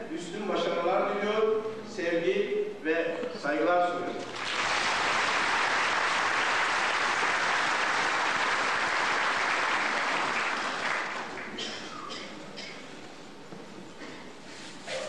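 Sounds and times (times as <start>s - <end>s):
large audience applauding: 4.2s - 11.9s.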